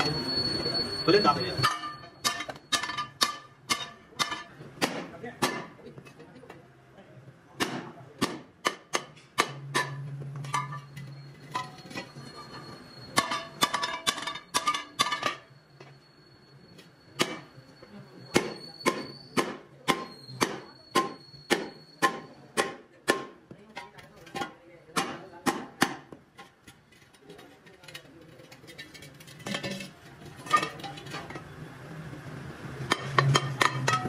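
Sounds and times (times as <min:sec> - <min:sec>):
hammer striking steel: 0:01.5 - 0:05.8, 0:07.6 - 0:15.5, 0:17.1 - 0:17.6, 0:18.3 - 0:26.6, 0:32.9 - 0:34.0.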